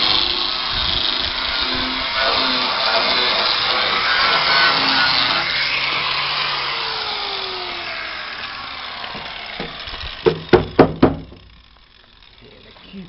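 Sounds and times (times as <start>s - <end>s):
angle grinder winding down: 0.0s - 13.0s
sharp knocks: 9.1s - 11.6s.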